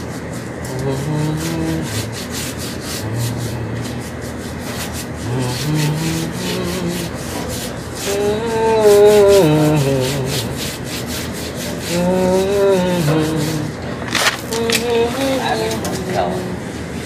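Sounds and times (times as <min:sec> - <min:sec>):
person humming a tune: 0:00.6 - 0:04.1, 0:05.2 - 0:10.8, 0:11.8 - 0:13.8, 0:14.4 - 0:16.6.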